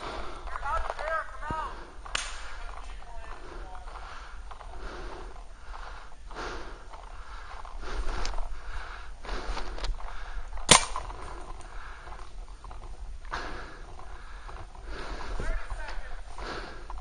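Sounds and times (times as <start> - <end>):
faint pops: 0.9 - 2.6
breathing inside a mask: 1.7 - 12.3, 13.2 - 15.5, 16.3 - 17.0
sharp paintball shot: 10.7 - 11.1.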